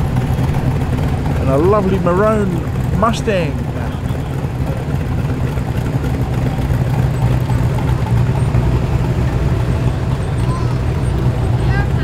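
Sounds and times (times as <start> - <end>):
car engines running: 0.0 - 12.0.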